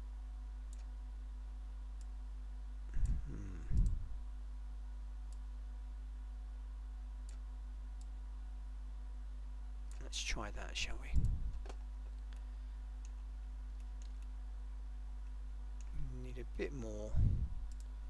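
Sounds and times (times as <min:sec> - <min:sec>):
low electrical hum: 0:00.0 - 0:18.0
computer mouse clicks: 0:00.7 - 0:00.9, 0:03.0 - 0:04.0, 0:07.2 - 0:08.2, 0:13.8 - 0:14.4, 0:17.6 - 0:18.0.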